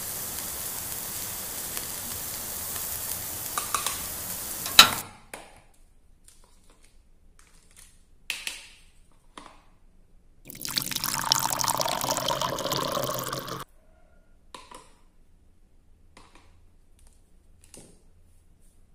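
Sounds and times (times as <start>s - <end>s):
water pouring onto plastic plate: 10.5s - 13.6s.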